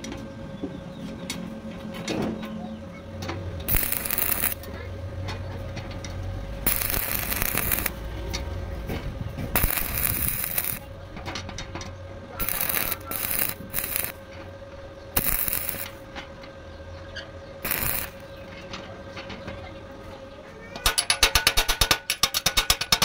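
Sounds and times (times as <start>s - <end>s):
faint hum: 0.0s - 20.9s
welding arc crackling and hissing: 3.6s - 4.8s, 6.4s - 11.2s, 12.3s - 14.2s, 15.1s - 16.1s, 17.6s - 18.5s.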